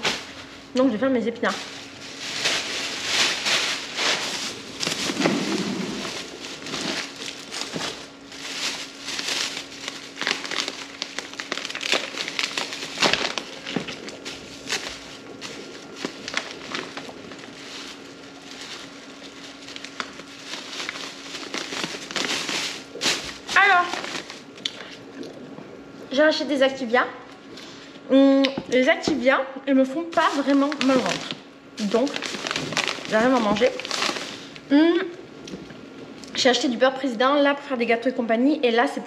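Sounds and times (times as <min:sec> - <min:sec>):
plastic bags rustling: 0:00.0 - 0:25.3, 0:30.0 - 0:34.7.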